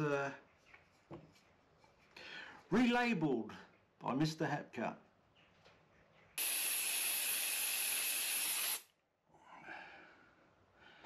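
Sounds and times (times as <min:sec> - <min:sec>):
compressed air burst: 0:06.4 - 0:08.9.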